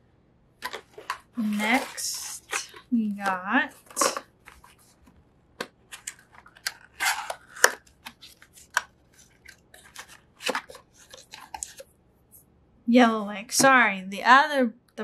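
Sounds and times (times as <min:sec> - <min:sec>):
cardboard boxes scraping and rustling: 0:00.6 - 0:02.9, 0:06.0 - 0:11.8.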